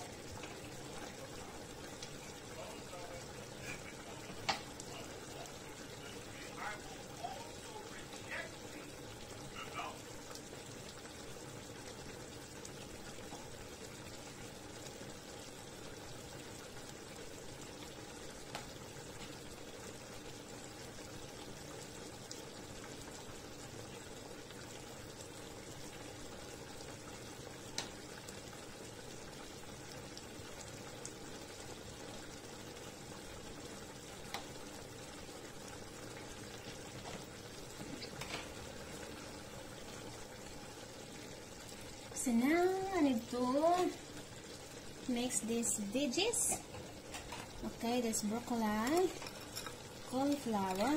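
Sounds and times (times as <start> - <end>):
spatula stirring a pan: 0.0 - 9.0, 46.0 - 50.9
sauce bubbling in a frying pan: 0.0 - 50.9.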